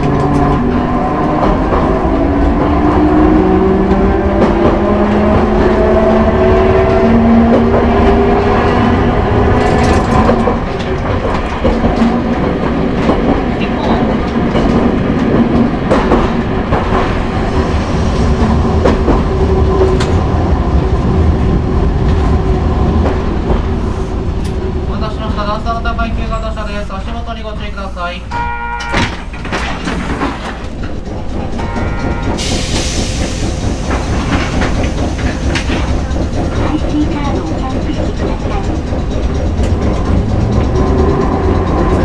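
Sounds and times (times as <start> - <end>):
tram motors whining: 0.0 - 42.0
wheels clicking over rail joints: 6.8 - 17.0, 28.8 - 42.0.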